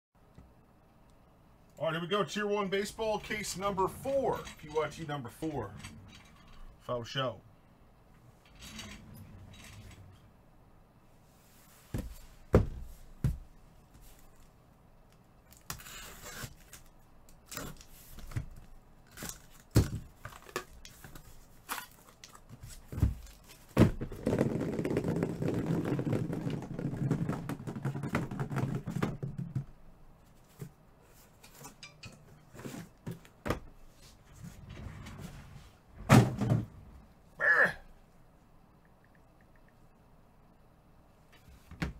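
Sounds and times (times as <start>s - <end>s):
thumps and knocks of boxes: 11.9s - 13.5s, 19.6s - 21.1s, 22.6s - 29.7s, 32.6s - 33.7s, 36.0s - 36.8s, 41.7s - 41.9s
rustling and scraping of cardboard: 17.5s - 31.8s, 32.5s - 36.4s.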